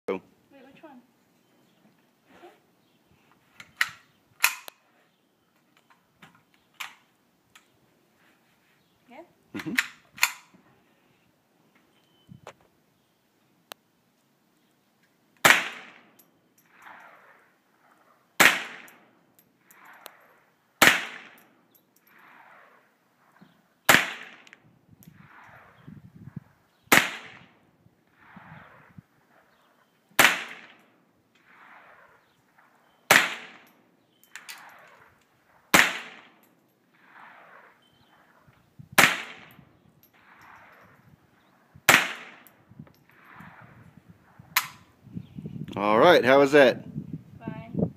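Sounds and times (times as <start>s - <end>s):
rifle shots: 15.4s - 19.0s, 19.7s - 21.5s, 22.1s - 24.6s, 26.9s - 29.5s, 30.2s - 30.8s, 31.4s - 33.8s, 34.4s - 38.4s, 39.0s - 44.8s.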